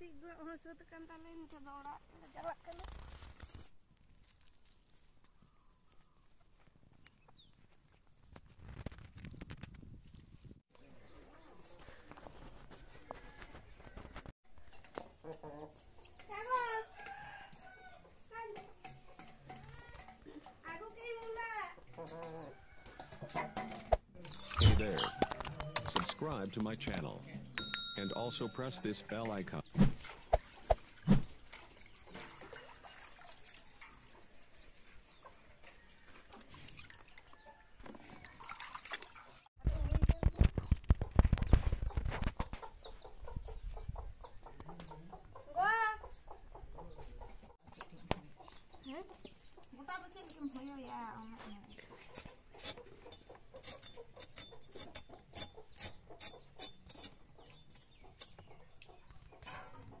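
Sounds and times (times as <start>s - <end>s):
faint water splashes and drips: 30.0s - 39.5s
radish scraped on a blade: 52.1s - 58.4s.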